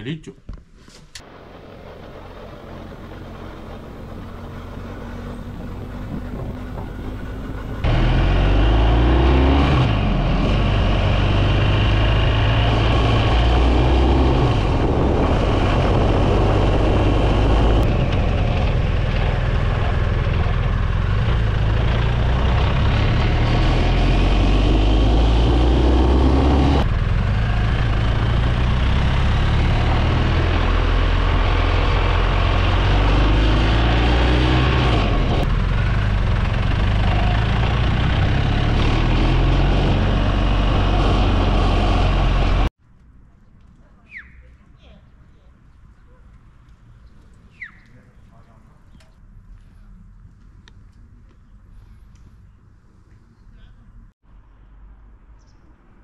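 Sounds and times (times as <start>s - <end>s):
rushing wind and road noise: 1.2s - 42.7s
motorcycle engine running: 14.8s - 23.4s, 35.1s - 38.5s.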